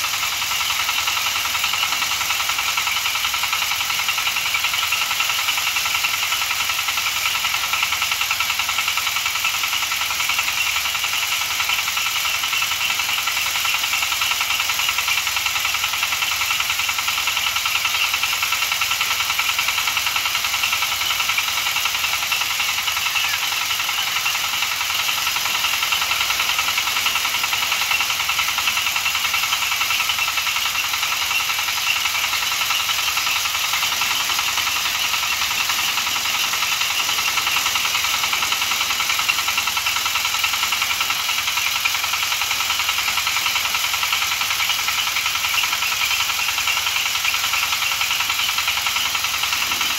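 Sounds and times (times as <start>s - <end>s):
diesel engine running: 0.0s - 49.9s
threshing drum hiss: 22.4s - 44.0s.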